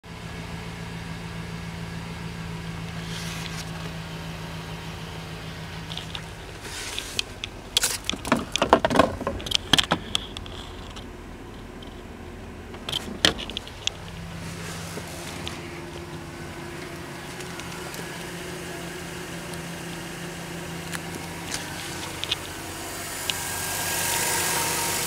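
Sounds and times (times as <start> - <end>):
truck engine idling: 0.1 - 25.0
clicks and knocks on dashboard: 7.2 - 12.0.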